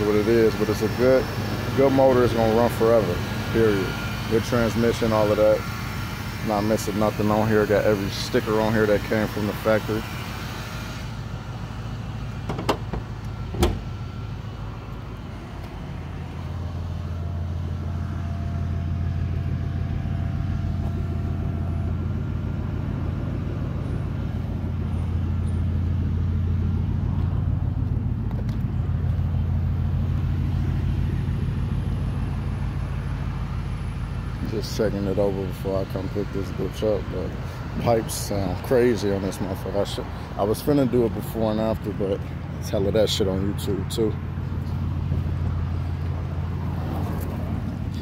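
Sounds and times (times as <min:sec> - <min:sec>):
car engine idling deep drone: 0:00.0 - 0:48.0
sharp knocks: 0:12.4 - 0:13.9.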